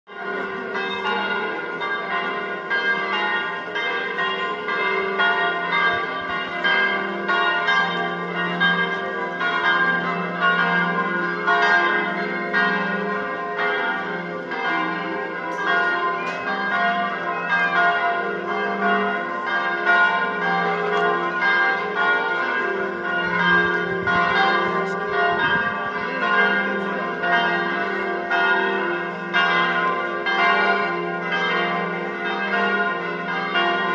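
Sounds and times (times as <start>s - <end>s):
church bells ringing: 0.1s - 33.9s.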